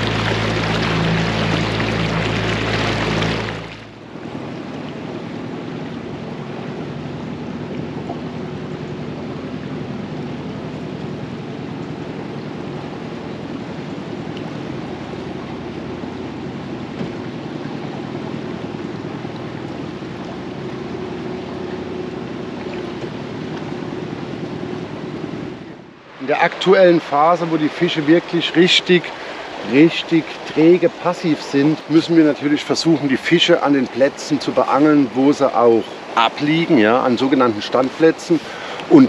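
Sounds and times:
low hum: 0.0s - 31.0s
river water rushing: 0.0s - 39.0s.

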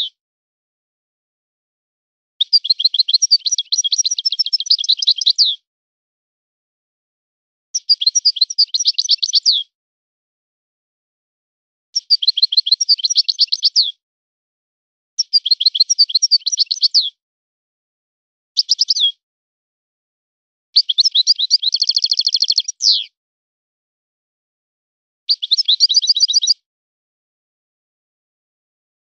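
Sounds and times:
goldfinch twittering song: 2.4s - 5.6s, 7.8s - 9.6s, 12.0s - 14.0s, 15.2s - 17.2s, 18.6s - 19.2s, 20.8s - 23.2s, 25.3s - 26.6s.

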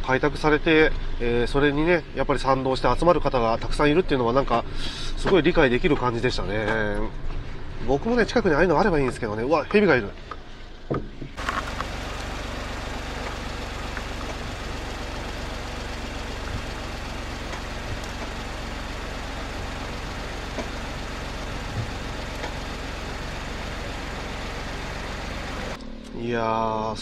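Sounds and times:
van engine idling: 11.4s - 25.8s.

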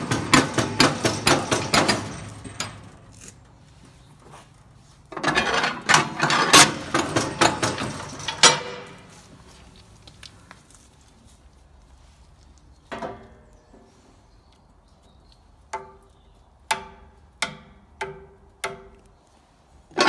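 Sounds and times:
metal parts clanking and rattling: 0.0s - 3.4s, 5.1s - 9.2s.

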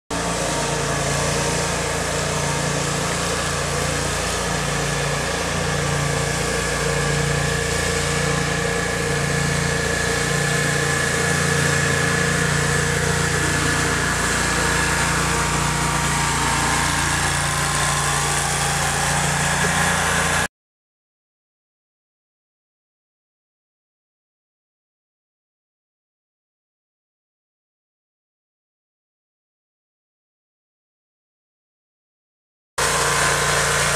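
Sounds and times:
stump grinder engine running: 0.1s - 20.5s, 32.8s - 33.9s.

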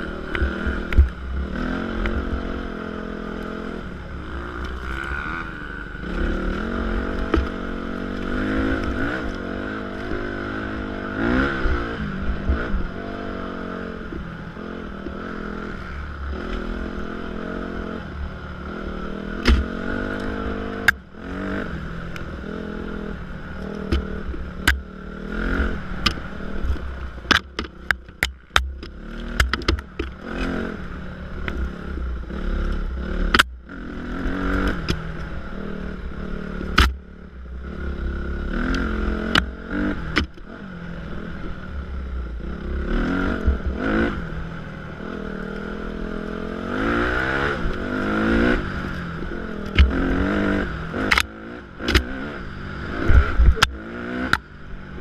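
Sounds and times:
dirt bike engine revving: 0.0s - 55.0s
sharp clicks and knocks: 0.3s - 1.2s, 19.4s - 21.0s, 23.6s - 24.9s, 26.0s - 30.6s, 32.7s - 33.6s, 34.5s - 35.3s, 36.6s - 37.0s, 38.6s - 40.5s, 49.6s - 52.3s, 53.0s - 54.5s.

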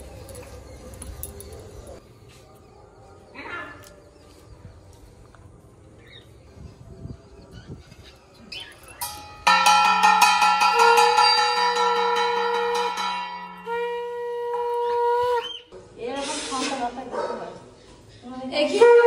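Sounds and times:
conch shell blasts: 9.4s - 15.5s.

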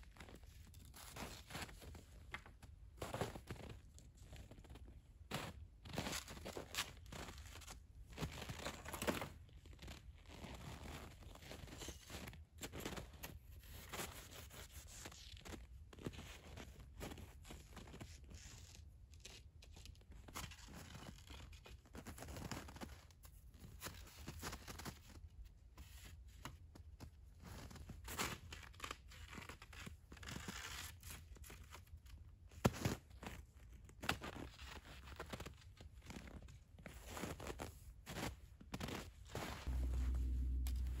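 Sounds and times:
steady low rumble: 39.7s - 41.0s.

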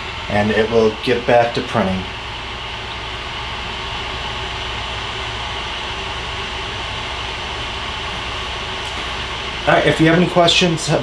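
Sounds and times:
printer fans and motors whirring: 0.0s - 11.0s.

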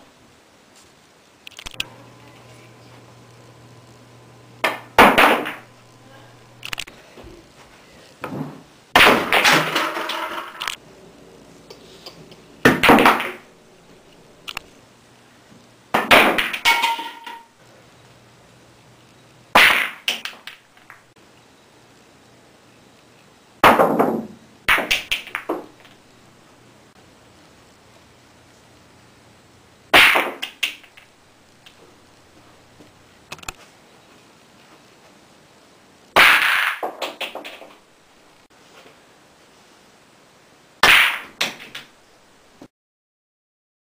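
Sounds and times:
pool balls clacking: 4.6s - 5.8s, 8.2s - 10.7s, 12.6s - 13.5s, 16.0s - 17.5s, 23.7s - 26.0s, 36.2s - 37.9s, 40.8s - 41.9s.

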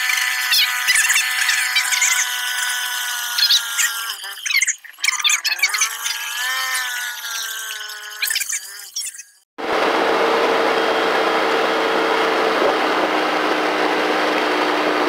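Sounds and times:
atv engine whine: 9.6s - 15.0s.

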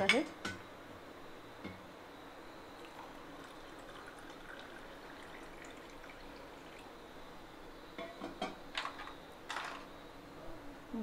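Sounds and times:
water pouring into a glass: 2.8s - 7.1s.

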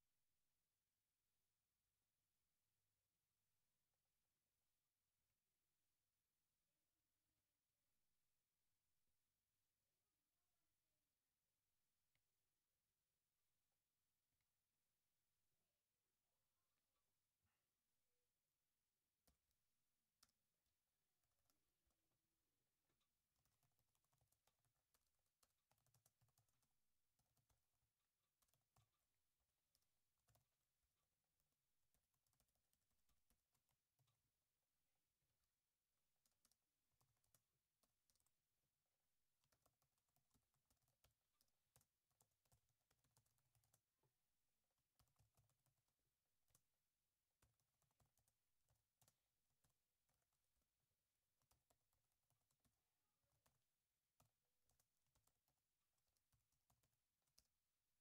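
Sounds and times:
faint keyboard typing: 14.1s - 58.0s.

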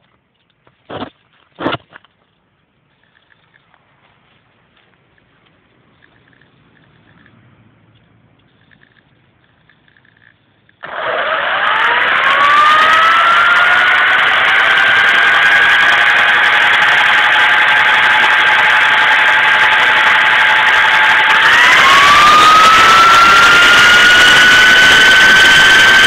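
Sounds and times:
model helicopter motor whine: 10.8s - 26.0s.

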